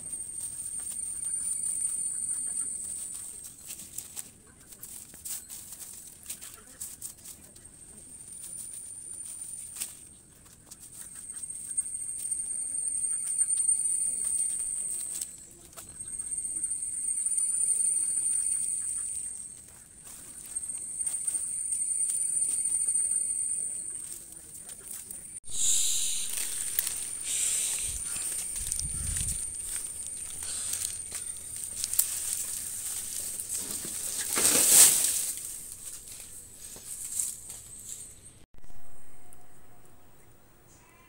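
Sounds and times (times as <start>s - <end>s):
high-pitched insect drone: 0.0s - 3.8s, 10.8s - 24.3s, 25.5s - 34.2s
dry sticks crackling: 24.0s - 38.1s.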